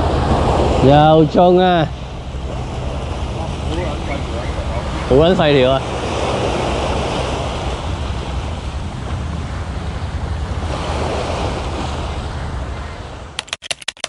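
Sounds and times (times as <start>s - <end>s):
small waves breaking on sand and rocks: 0.0s - 13.4s
wind rumbling on microphone: 0.0s - 13.5s.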